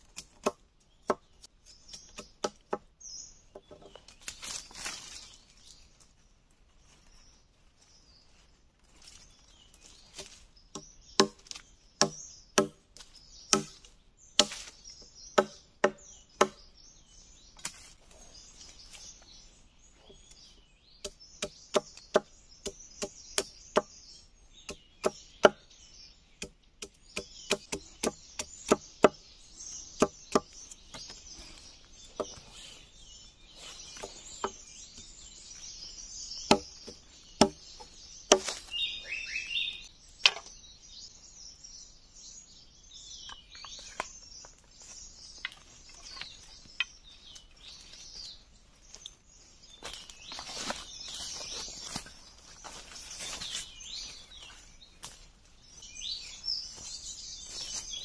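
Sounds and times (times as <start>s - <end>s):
bird chirping: 0.0s - 58.0s
machete chopping wood: 2.0s - 2.8s, 10.2s - 12.8s, 13.5s - 14.8s, 15.4s - 16.6s, 26.4s - 29.2s, 36.5s - 37.6s, 38.3s - 38.7s.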